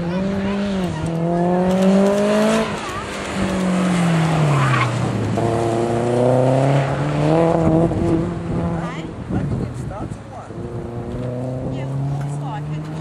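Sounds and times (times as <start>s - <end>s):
car engine accelerating hard: 0.0s - 13.0s.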